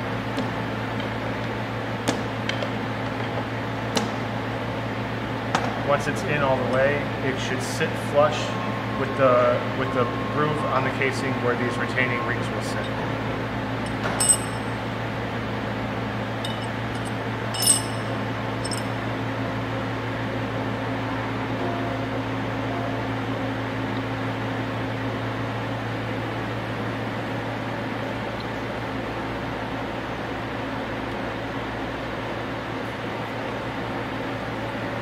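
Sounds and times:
steady machine hum: 0:00.0 - 0:35.0
light metallic clinks: 0:13.8 - 0:14.8, 0:16.4 - 0:19.0.

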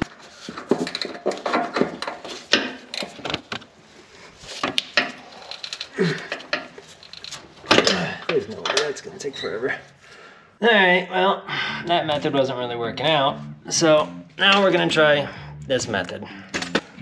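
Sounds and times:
wrench clinking and scraping on nut: 0:00.5 - 0:03.2, 0:04.5 - 0:09.5.

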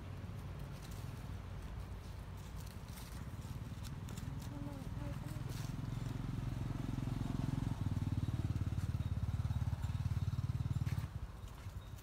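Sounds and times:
small engine running: 0:03.0 - 0:12.0.

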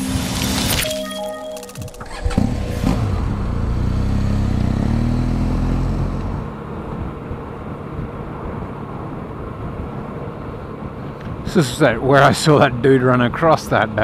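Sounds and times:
road noise: 0:00.0 - 0:00.8, 0:01.8 - 0:14.0
motorcycle engine accelerating: 0:01.7 - 0:11.4.

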